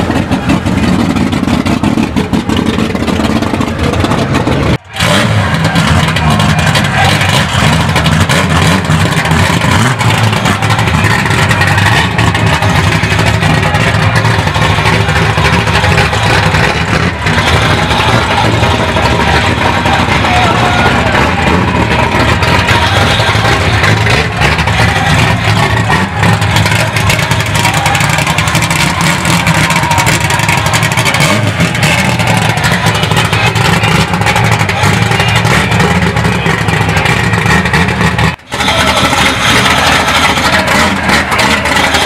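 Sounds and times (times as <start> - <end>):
car engines running and revving: 0.0 - 42.0.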